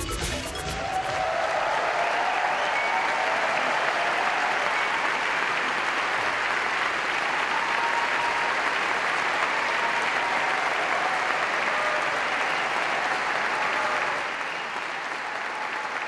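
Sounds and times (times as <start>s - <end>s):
large audience applauding: 0.0s - 16.0s.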